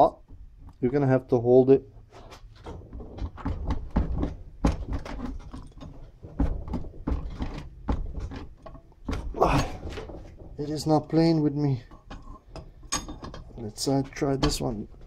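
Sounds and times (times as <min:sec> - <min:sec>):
metal tool clicking and knocking: 0:11.9 - 0:13.6.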